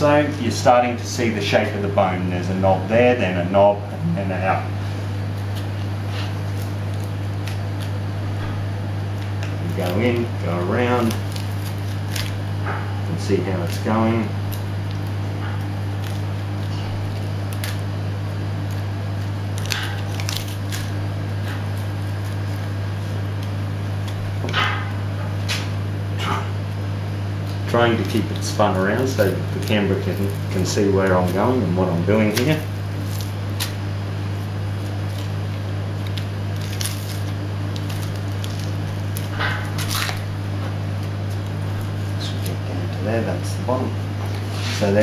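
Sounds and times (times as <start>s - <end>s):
steady low hum: 0.0s - 45.0s
knife scraping bone: 28.0s - 42.7s.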